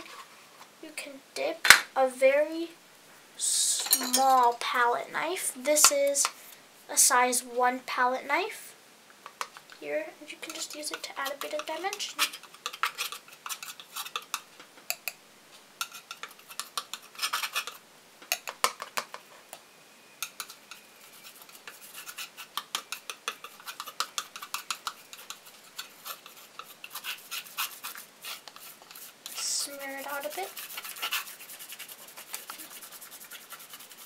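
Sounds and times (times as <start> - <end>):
palette knife scraping: 10.4 - 14.4, 15.8 - 17.8, 20.3 - 34.0.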